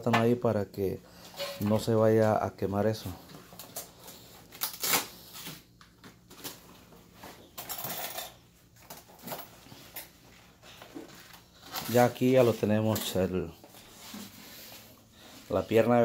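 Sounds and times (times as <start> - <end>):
banana leaves rustling and crackling: 10.6 - 16.0.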